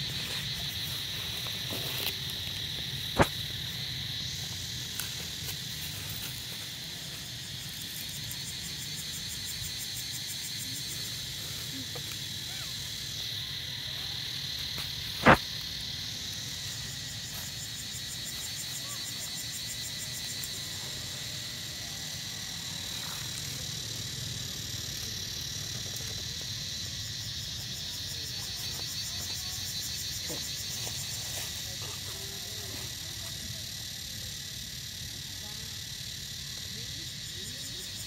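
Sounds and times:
insects buzzing: 0:00.0 - 0:38.0.

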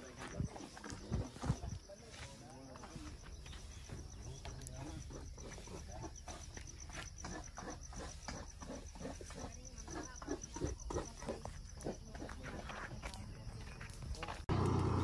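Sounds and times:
insect chirping: 0:00.0 - 0:14.5.

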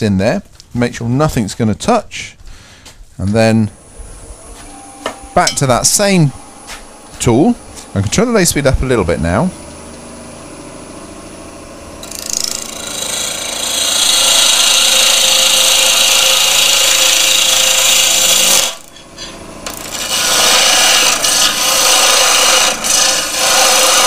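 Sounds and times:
wood lathe cutting hiss: 0:03.8 - 0:18.9, 0:19.6 - 0:24.0.

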